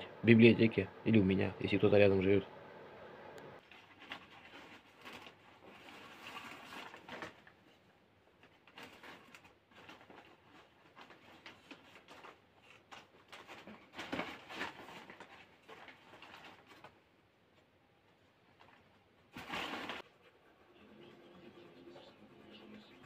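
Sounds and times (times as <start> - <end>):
rustling: 3.6 - 20.6.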